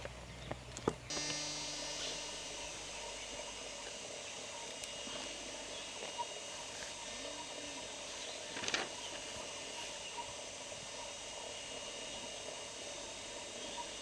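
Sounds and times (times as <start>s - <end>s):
outdoor background hiss: 0.0s - 14.0s
faint high steady tones: 1.1s - 14.0s.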